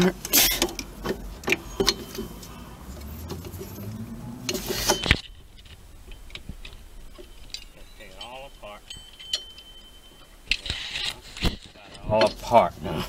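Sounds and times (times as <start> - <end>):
hand tools clinking on metal: 0.0 - 3.9, 4.5 - 12.7
low hum rising in pitch: 2.5 - 10.2.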